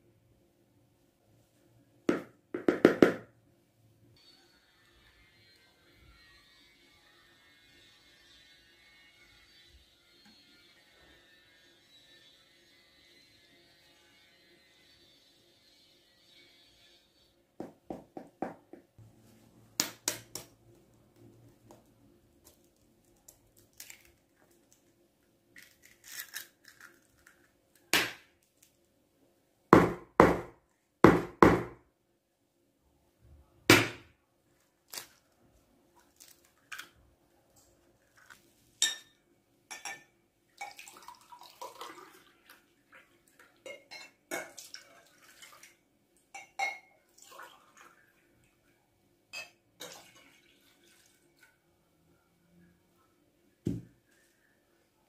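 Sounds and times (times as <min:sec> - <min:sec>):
eggs cracking: 0:22.4 - 0:24.9, 0:25.6 - 0:28.2
glass and pot clinking: 0:38.8 - 0:40.9, 0:43.6 - 0:44.6, 0:46.4 - 0:47.0, 0:49.3 - 0:50.0.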